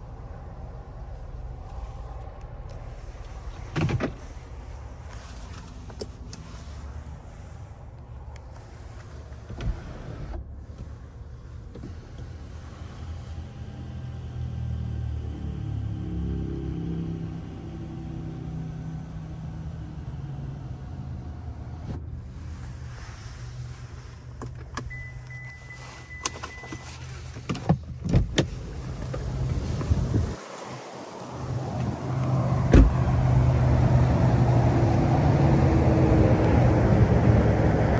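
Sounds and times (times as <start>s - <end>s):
low vehicle hum: 0.0s - 37.9s
car door shutting: 3.5s - 4.4s, 9.4s - 11.0s, 24.4s - 30.7s, 31.5s - 33.2s.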